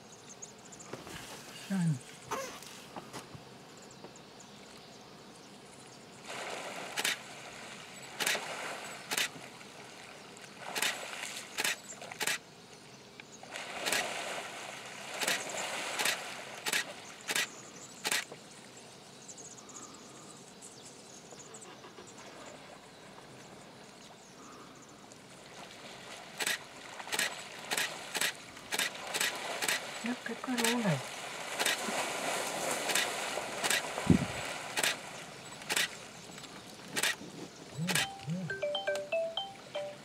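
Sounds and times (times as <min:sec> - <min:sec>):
crocodiles splashing in water: 0:06.3 - 0:12.4, 0:13.5 - 0:17.5, 0:25.5 - 0:36.2
sharp clicks: 0:16.0 - 0:18.3, 0:34.8 - 0:35.0, 0:35.6 - 0:35.9, 0:36.9 - 0:37.2, 0:37.8 - 0:39.1.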